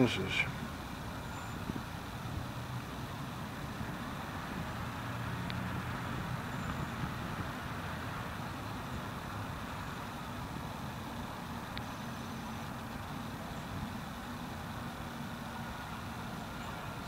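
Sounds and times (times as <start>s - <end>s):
low engine hum: 0.0s - 17.0s
road traffic rumble: 0.0s - 17.0s
faint ticks: 5.4s - 5.6s, 11.7s - 12.0s.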